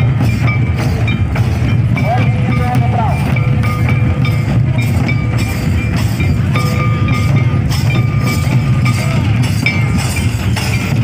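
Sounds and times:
hand drums beating a dance rhythm: 0:00.0 - 0:11.0.

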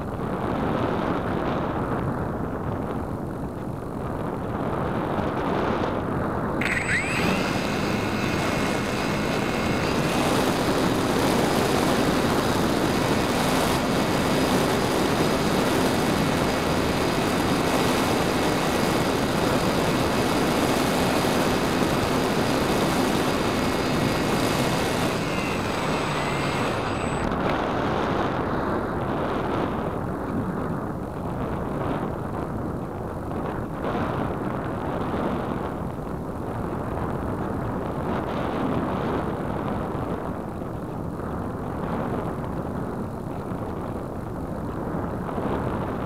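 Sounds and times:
electric motor propeller whine: 0:06.6 - 0:28.0.

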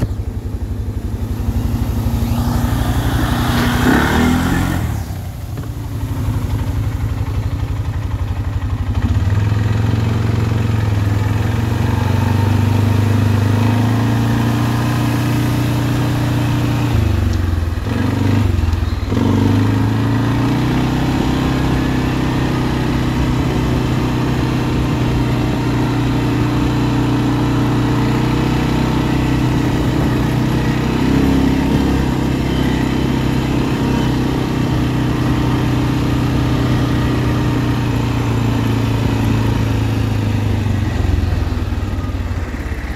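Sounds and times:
atv engine running: 0:00.0 - 0:42.9.

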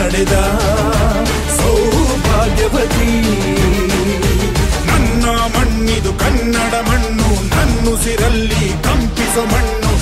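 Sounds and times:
film song with singer and beat: 0:00.0 - 0:10.0.

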